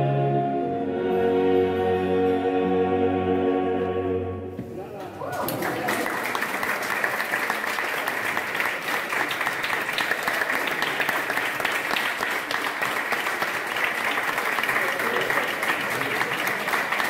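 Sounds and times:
audience applauding: 0:05.0 - 0:17.0.

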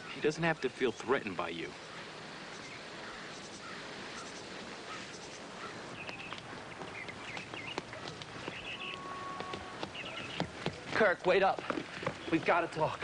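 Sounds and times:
small birds chirping: 0:00.0 - 0:13.0
steady background hiss: 0:00.0 - 0:13.0
footsteps: 0:05.7 - 0:13.0.

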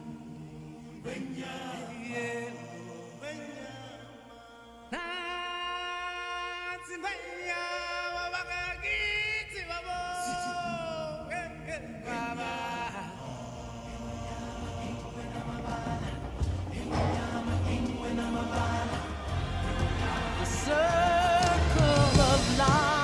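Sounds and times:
choral chanting: 0:00.0 - 0:23.0.

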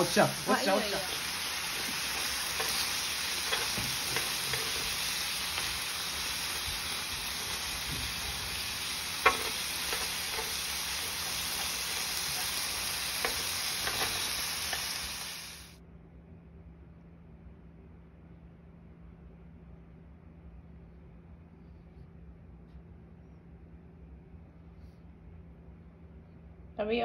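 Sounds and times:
meat sizzling on a hot plate: 0:00.0 - 0:15.8.

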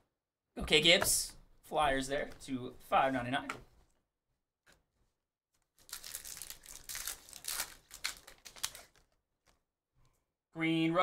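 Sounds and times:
plastic wrapper crinkling: 0:05.6 - 0:09.6.

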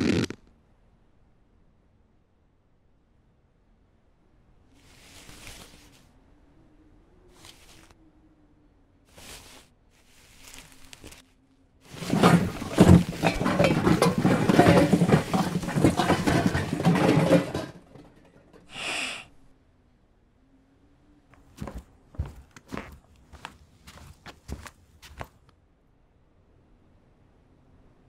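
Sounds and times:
zipper being drawn open: 0:00.0 - 0:00.4.

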